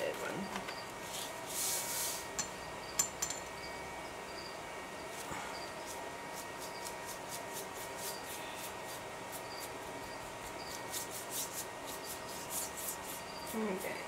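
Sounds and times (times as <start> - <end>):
paintbrush rubbing on paper: 5.8 - 14.0.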